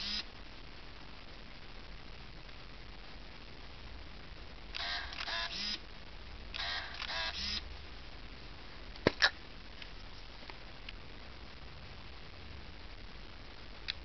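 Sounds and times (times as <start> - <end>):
camera motor whirring: 0.0 - 0.2, 4.8 - 5.8, 6.6 - 7.6.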